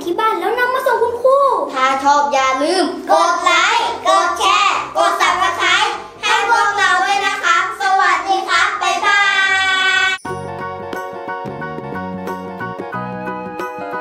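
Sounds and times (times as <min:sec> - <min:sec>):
children chanting: 0:03.1 - 0:10.2
music jingle: 0:10.0 - 0:14.0.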